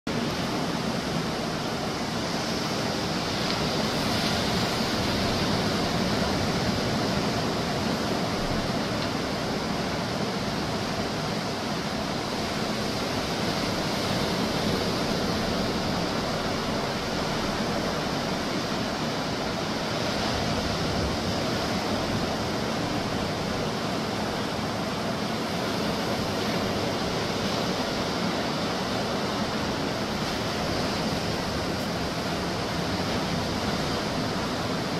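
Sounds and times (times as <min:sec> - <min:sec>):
surf breaking on beach: 0:00.1 - 0:34.9.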